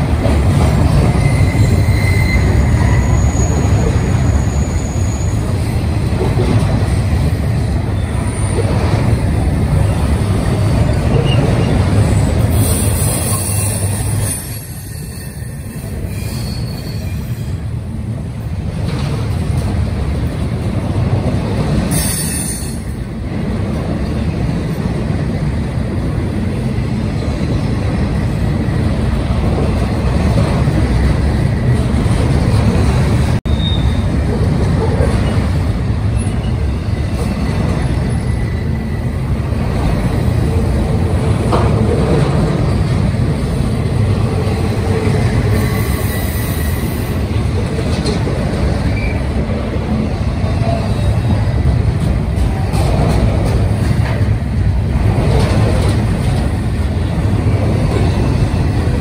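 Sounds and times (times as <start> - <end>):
train wheels rumbling on rails: 0.0 - 59.0
high wheel squeal: 1.0 - 5.6, 10.8 - 17.7, 21.9 - 23.0, 33.5 - 34.2, 36.1 - 39.2, 45.5 - 47.2, 48.7 - 49.4.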